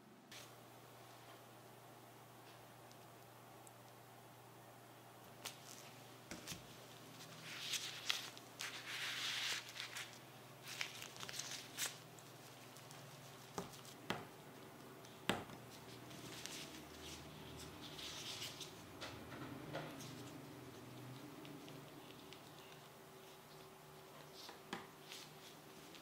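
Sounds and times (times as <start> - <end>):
crinkly glove rustling: 5.3 - 18.9, 20.0 - 26.0.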